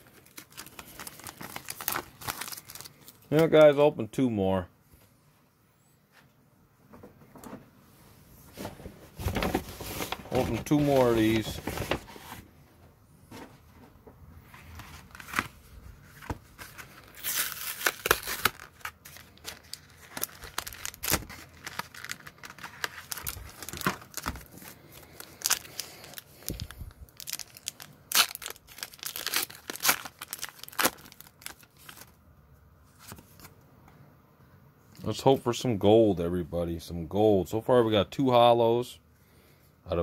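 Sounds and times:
wrapper tearing: 0.0 - 3.5, 16.6 - 32.2
wrapper crinkling: 0.0 - 3.6, 9.2 - 12.4, 14.6 - 32.2.

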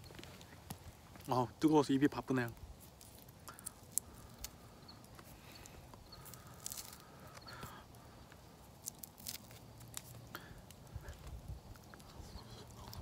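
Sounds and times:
charred skin crackling: 0.0 - 13.0
quiet chewing: 2.8 - 13.0.

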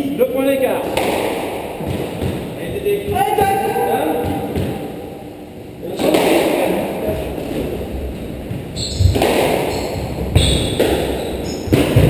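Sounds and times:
squash ball hits: 0.9 - 5.1, 8.5 - 12.0
shoes squeaking on wooden floor: 8.5 - 12.0.

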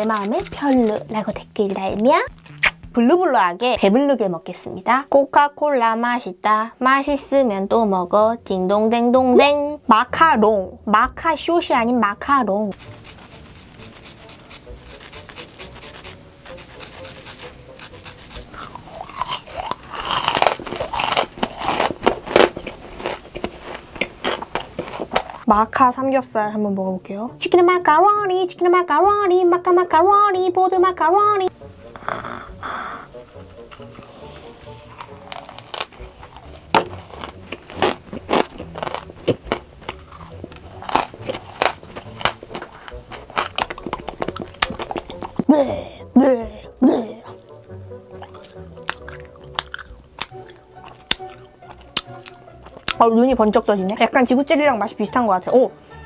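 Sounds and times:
meringue crushed between fingers: 2.3 - 2.9, 12.7 - 25.4, 31.9 - 45.5, 48.1 - 53.0
chewing crunchy meringue: 12.8 - 25.5, 33.5 - 45.5, 48.1 - 53.0.

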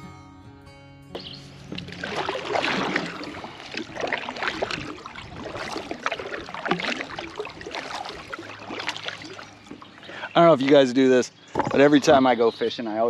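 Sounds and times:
paddle splashing water: 1.2 - 10.9.

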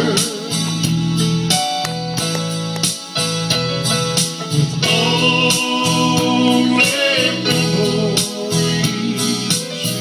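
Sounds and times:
man singing: 0.0 - 0.9, 4.5 - 10.0
electronic keyboard playing: 0.0 - 10.0.

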